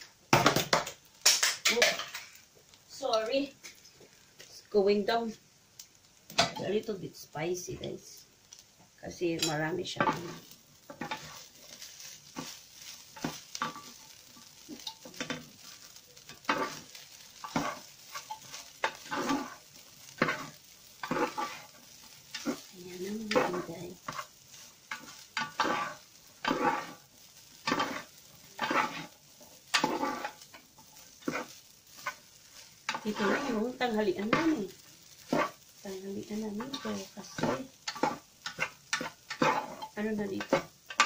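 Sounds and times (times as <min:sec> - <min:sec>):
light sizzle: 0:00.0 - 0:41.0
utensil scraping fried rice in pan: 0:09.4 - 0:41.0.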